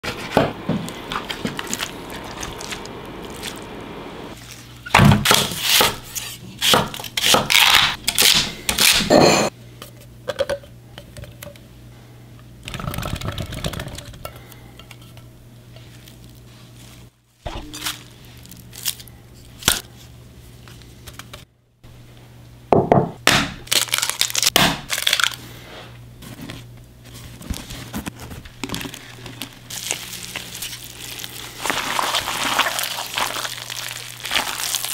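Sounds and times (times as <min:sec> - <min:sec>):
steady low hum: 0:00.0 - 0:04.8, 0:08.0 - 0:23.8
food crunching: 0:01.0 - 0:03.7, 0:28.7 - 0:34.9.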